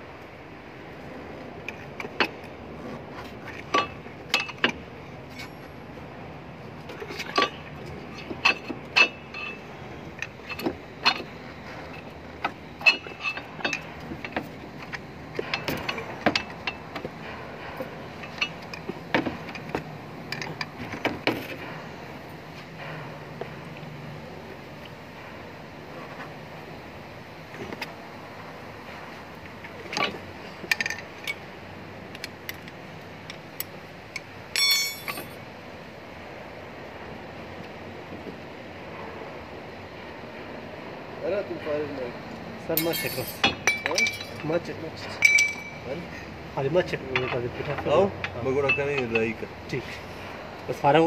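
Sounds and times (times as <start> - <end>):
low background hum: 0.0 - 51.0
screwdriver clinking on metal caliper: 33.6 - 35.4, 42.8 - 44.5, 45.2 - 45.8.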